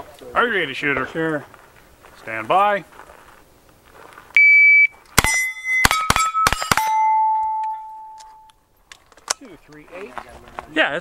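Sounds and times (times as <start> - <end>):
shot timer beep: 4.4 - 8.5
carbine gunshots: 5.2 - 7.3
steel target ringing: 5.2 - 8.5.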